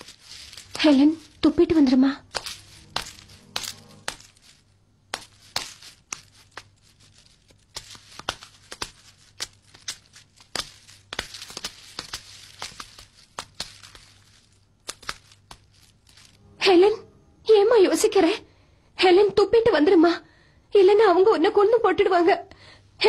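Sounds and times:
crackles and sharp clicks: 0:00.0 - 0:16.4
faint low hum: 0:00.0 - 0:23.0.

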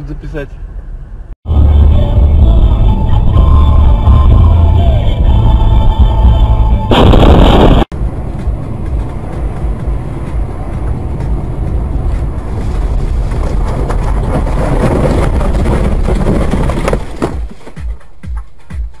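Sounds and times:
car road and engine noise: 0:00.0 - 0:19.0
loud sound cut off: 0:01.5 - 0:10.5.

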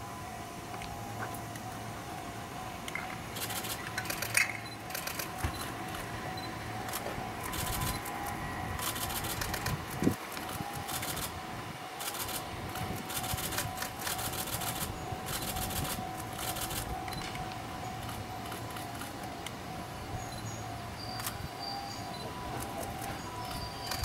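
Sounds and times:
level-crossing warning bell ringing: 0:00.0 - 0:24.0
rapid high-pitched clicking: 0:02.9 - 0:06.1, 0:06.8 - 0:11.3, 0:12.0 - 0:19.6, 0:22.6 - 0:24.0.

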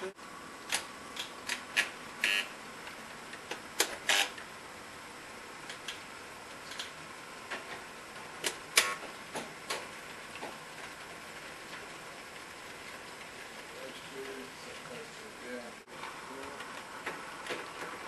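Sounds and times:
model railway clicks and clacks: 0:08.4 - 0:15.2, 0:16.0 - 0:18.0.

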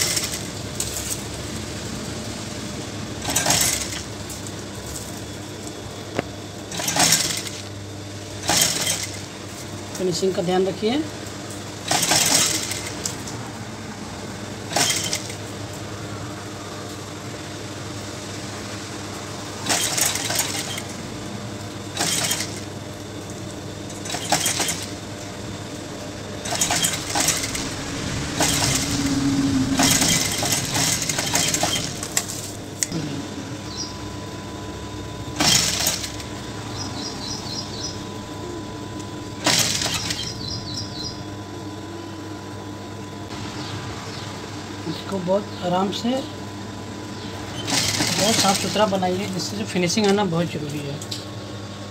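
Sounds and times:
sewing machine stitching: 0:00.0 - 0:01.1, 0:03.2 - 0:04.1, 0:06.7 - 0:07.7, 0:08.4 - 0:09.3, 0:11.8 - 0:13.2, 0:14.7 - 0:15.4, 0:19.6 - 0:20.9, 0:21.9 - 0:22.7, 0:23.9 - 0:25.0, 0:26.4 - 0:27.8, 0:28.4 - 0:32.5, 0:35.4 - 0:36.3, 0:39.4 - 0:40.5, 0:47.5 - 0:49.0
steady hum: 0:00.0 - 0:51.9.

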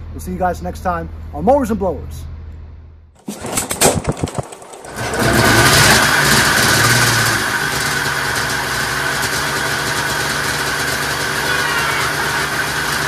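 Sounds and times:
small engine knocking and running: 0:03.3 - 0:13.0.

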